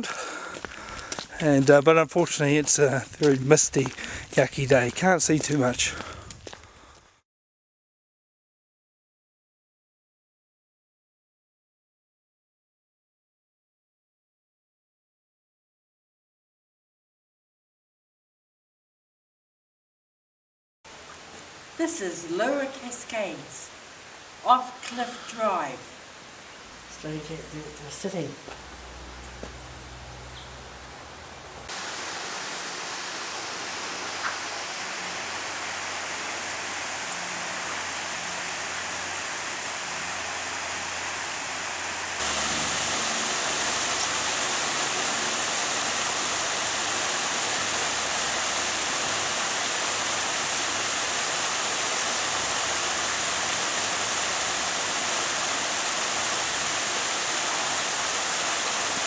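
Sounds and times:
small waterfall rushing: 20.9s - 27.8s, 31.6s - 59.0s.

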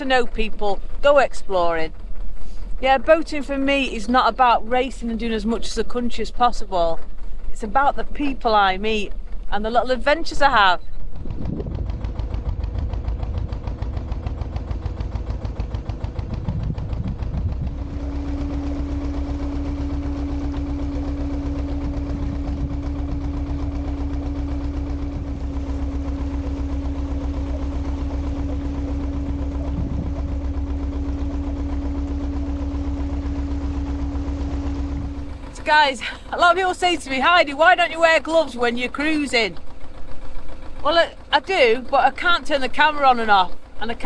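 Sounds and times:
diesel boat engine chugging: 0.0s - 44.0s
steady hum: 0.0s - 44.0s.

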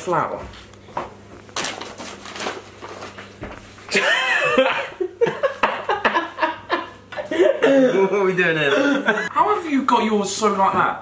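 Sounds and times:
men laughing: 3.9s - 9.3s.

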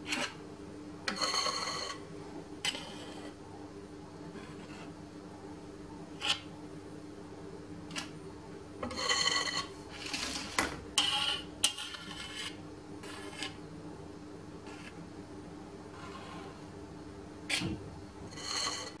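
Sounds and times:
spatula scraping metal pan: 0.0s - 0.4s, 1.1s - 2.0s, 2.6s - 3.4s, 8.8s - 13.6s, 15.9s - 16.6s, 17.5s - 19.0s.

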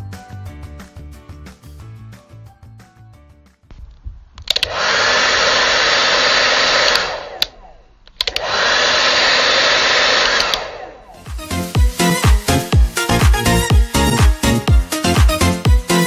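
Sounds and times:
electric motor blowing: 4.6s - 7.6s, 8.3s - 14.1s.

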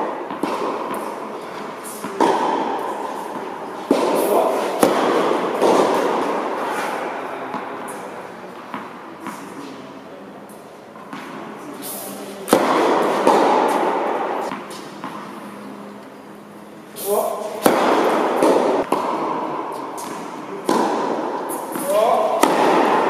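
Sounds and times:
ball bounces: 0.0s - 1.2s, 2.0s - 8.0s, 12.5s - 15.3s, 17.6s - 23.0s
tennis ball off racket: 0.2s - 9.7s, 11.0s - 15.3s, 17.0s - 23.0s.

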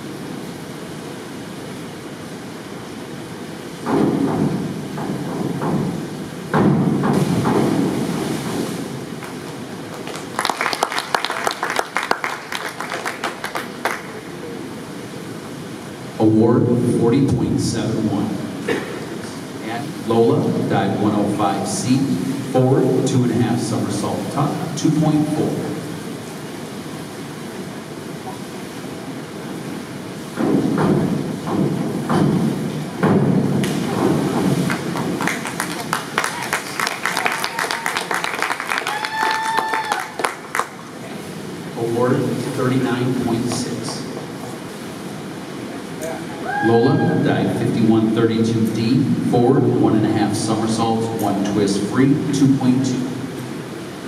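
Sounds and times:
indoor pool hall hum: 0.0s - 54.0s
springboard hit: 3.8s - 9.0s, 30.3s - 35.2s
people clapping: 9.2s - 14.5s, 33.6s - 41.0s.

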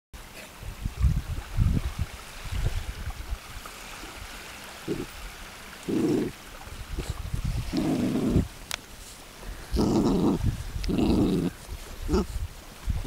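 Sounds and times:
puppy growling: 4.8s - 5.1s, 5.8s - 6.4s, 7.7s - 8.5s, 9.7s - 12.4s
puppy digging in sand: 7.0s - 13.0s.

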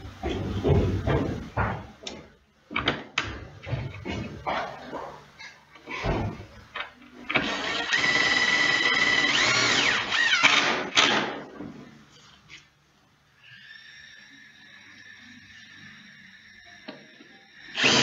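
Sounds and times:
cordless drill whining: 7.4s - 10.8s, 17.7s - 18.0s.

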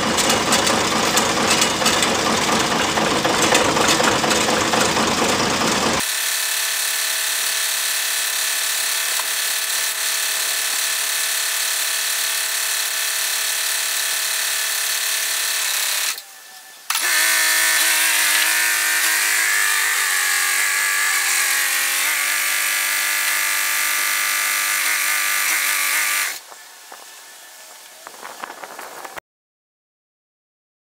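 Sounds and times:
tractor engine whining: 0.0s - 6.0s, 13.1s - 29.2s.

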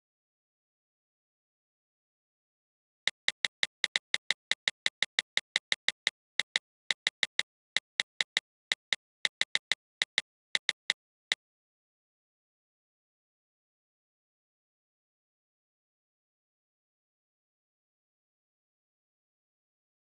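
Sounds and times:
sharp clicks: 3.1s - 11.0s.

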